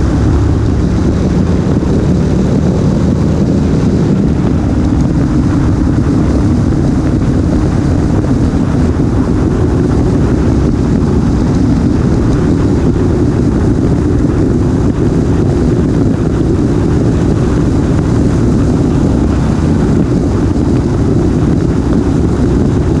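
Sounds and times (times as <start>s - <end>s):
motorcycle engine: 0.0s - 23.0s
wind buffeting microphone: 0.0s - 23.0s.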